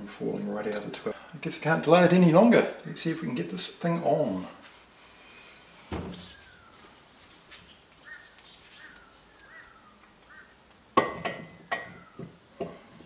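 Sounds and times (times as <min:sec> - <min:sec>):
faint bird chirps: 0:06.0 - 0:10.7, 0:11.4 - 0:12.6.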